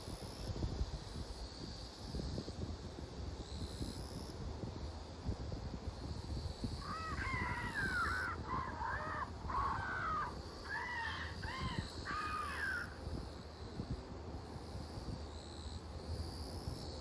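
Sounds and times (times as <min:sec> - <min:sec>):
crow cawing: 0:06.8 - 0:13.0.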